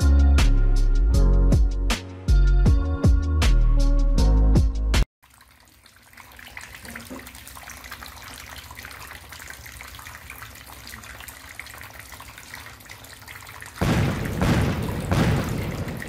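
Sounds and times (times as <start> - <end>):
water splashing into basin: 5.2 - 16.0.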